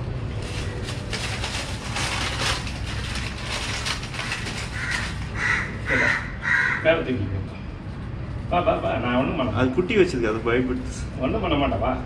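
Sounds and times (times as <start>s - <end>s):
plastic packaging crinkling: 0.2s - 5.8s
crow cawing: 4.2s - 7.3s.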